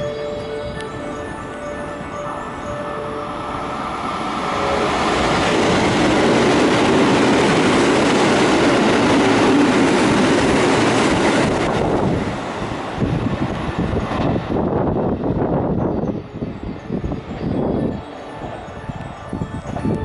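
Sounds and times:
electric train passing at speed: 0.0s - 20.0s.

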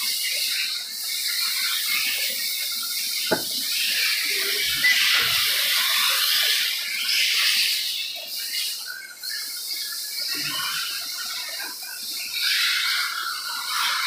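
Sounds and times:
sharp knock: 3.3s - 3.7s.

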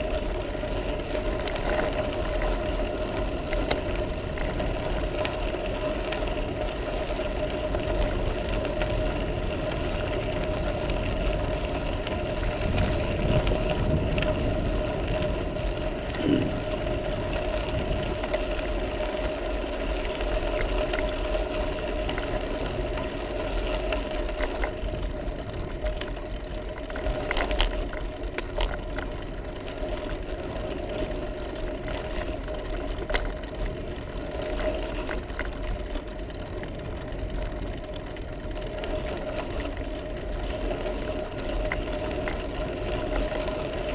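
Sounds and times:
bicycle rattling: 0.0s - 43.9s
bicycle tyres crunching on gravel: 0.0s - 43.9s.

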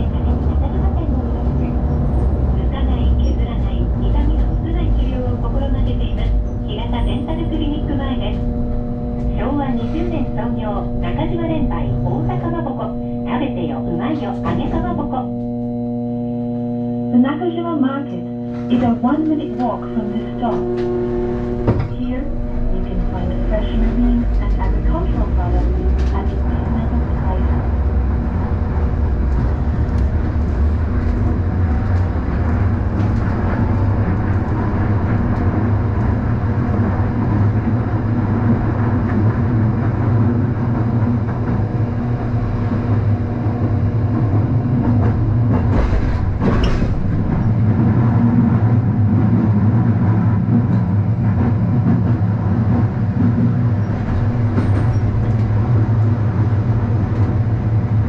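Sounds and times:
tram hum: 0.0s - 58.0s
wheels rolling on rails: 22.6s - 58.0s.

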